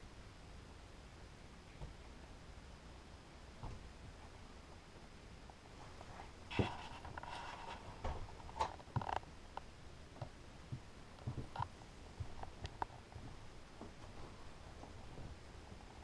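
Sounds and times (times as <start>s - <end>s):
thump: 3.6s - 3.8s
faint knocks and clicks: 6.5s - 16.0s.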